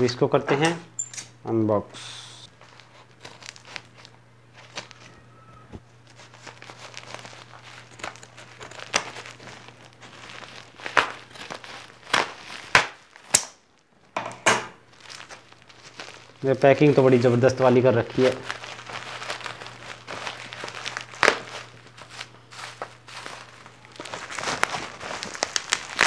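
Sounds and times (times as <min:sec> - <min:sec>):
plastic bag crinkling: 0:02.5 - 0:14.1, 0:14.8 - 0:26.0
scissors cutting plastic: 0:10.7 - 0:13.6.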